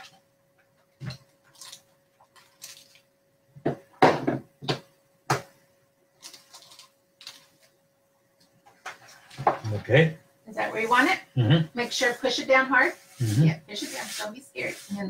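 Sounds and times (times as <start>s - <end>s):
faint steady hum: 0.0s - 15.0s
knocks and rustles on tabletop: 3.6s - 5.6s, 8.7s - 9.7s.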